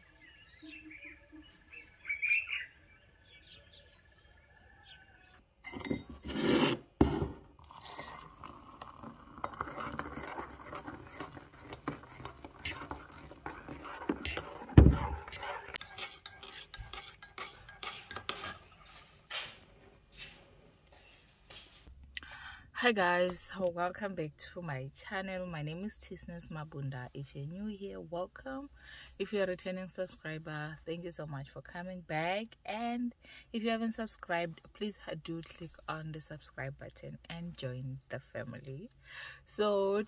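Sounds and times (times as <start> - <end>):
birds chirping: 0.0 - 5.4
spoon stirring in ceramic mug: 7.6 - 19.1.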